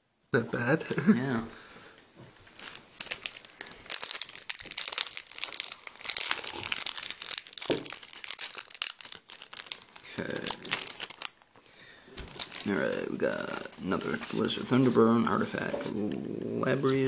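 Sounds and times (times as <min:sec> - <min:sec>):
foil wrapper crinkling and tearing: 0:02.4 - 0:11.6, 0:12.2 - 0:15.6.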